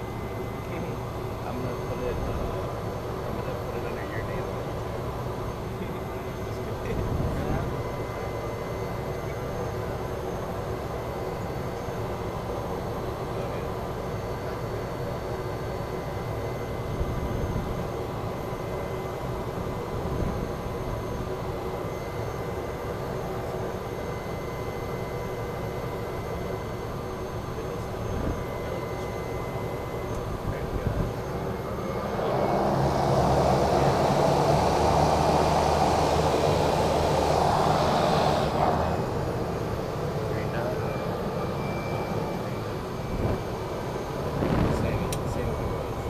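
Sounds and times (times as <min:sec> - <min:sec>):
turboprop engine and propeller: 0:00.0 - 0:46.0.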